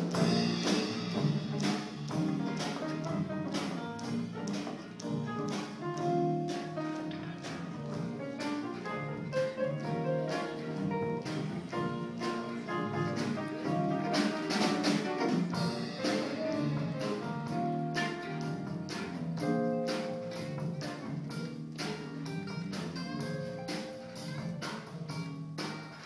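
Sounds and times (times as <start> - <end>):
drum strokes: 0.0 - 26.0
guitar: 0.0 - 26.0
piano: 0.0 - 26.0
brass: 6.4 - 21.6.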